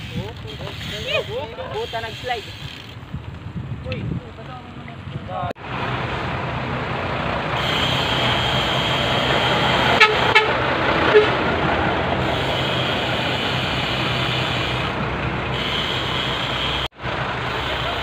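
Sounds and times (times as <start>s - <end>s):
wind on microphone: 2.4s - 5.5s
trucks idling: 5.6s - 18.0s.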